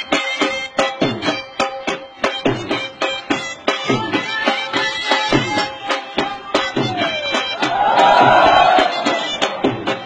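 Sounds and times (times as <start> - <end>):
loud held chanting cry: 7.6 - 9.9.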